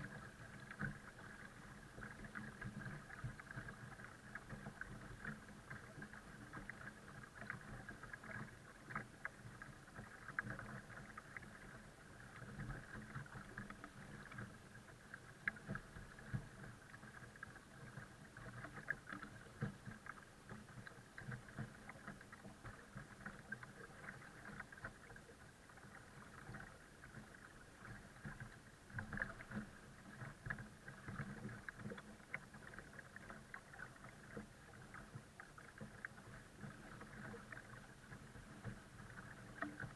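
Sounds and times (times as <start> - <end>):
faint steady hum: 0.0 - 39.9
water splashing against kayak hull: 0.0 - 39.9.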